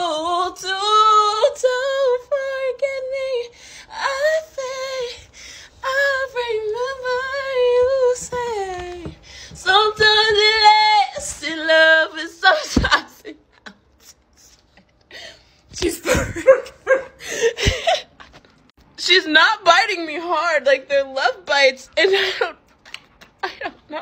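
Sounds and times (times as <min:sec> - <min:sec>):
woman singing unaccompanied: 0:00.0 - 0:13.4.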